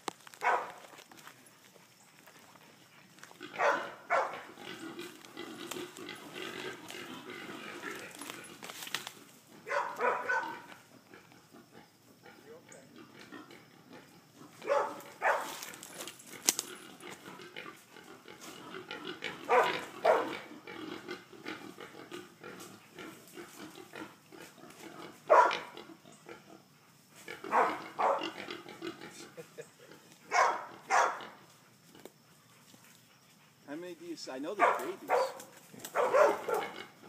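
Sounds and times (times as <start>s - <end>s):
dog barking: 0.4s - 0.8s, 3.6s - 4.4s, 9.6s - 10.7s, 14.6s - 15.6s, 19.5s - 20.4s, 25.3s - 25.7s, 27.5s - 28.4s, 30.3s - 31.3s, 34.6s - 36.8s
hogs grunting: 2.6s - 37.0s.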